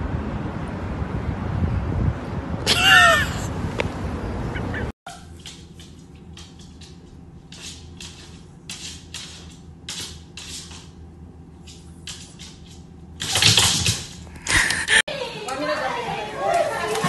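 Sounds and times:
dog claws clicking on wood floor: 0:05.3 - 0:11.0, 0:11.6 - 0:14.7.

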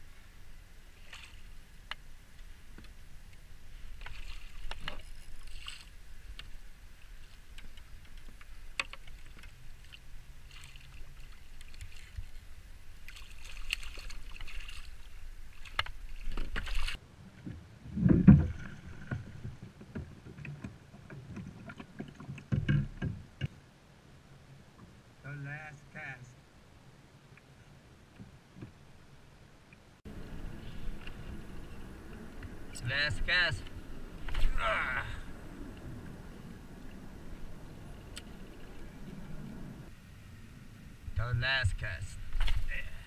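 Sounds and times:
fish splashing: 0:03.9 - 0:06.0, 0:13.0 - 0:17.0
wind on microphone: 0:30.1 - 0:42.8.

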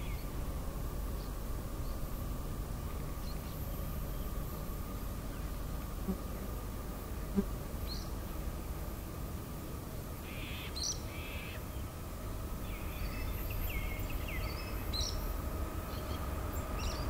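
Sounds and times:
freight train rumble: 0:00.0 - 0:10.2, 0:11.6 - 0:17.0
birds chirping and whistling: 0:12.6 - 0:15.2.

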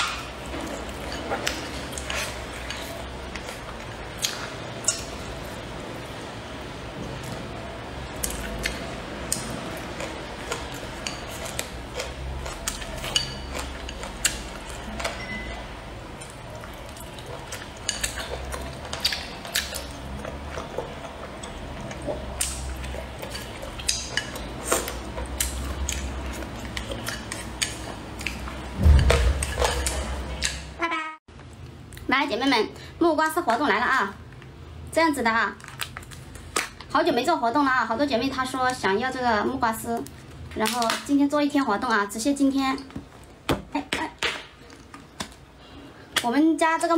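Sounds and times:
wet chewing: 0:16.1 - 0:30.6
low thump: 0:28.8 - 0:29.5.

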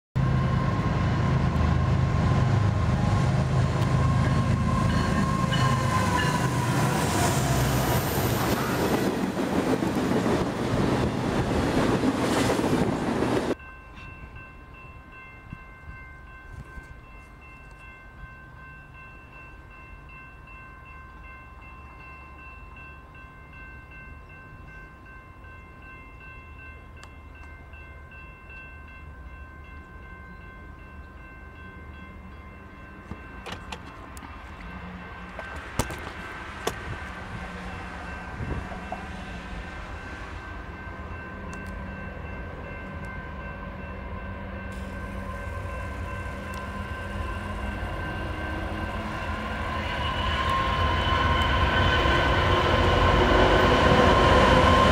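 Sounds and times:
train horn: 0:00.2 - 0:09.2, 0:43.1 - 0:54.9
crossing warning bell ringing: 0:00.2 - 0:10.4, 0:13.5 - 0:36.2, 0:37.0 - 0:54.9
diesel locomotive engine rumble: 0:00.2 - 0:21.7, 0:22.7 - 0:54.9
distant train approaching: 0:00.2 - 0:54.9.

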